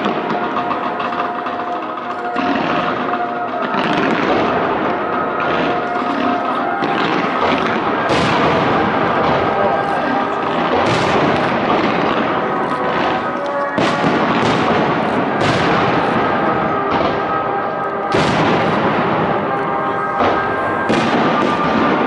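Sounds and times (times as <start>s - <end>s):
firework crackle: 0.0s - 22.0s
sharp firework bangs: 0.0s - 22.0s.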